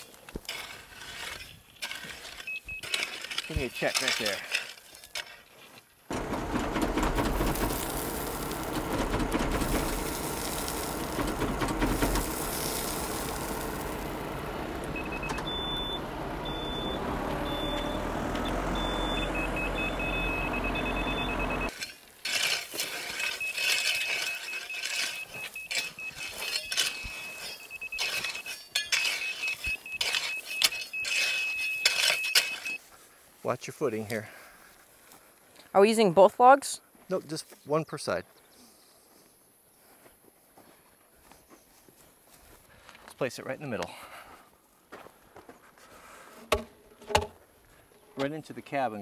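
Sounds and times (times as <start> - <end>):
rake scraping through gravel: 0.0 - 6.3, 7.2 - 15.1, 21.7 - 32.9
tractor engine running: 6.1 - 21.8
gravel pouring from bucket: 7.0 - 14.6.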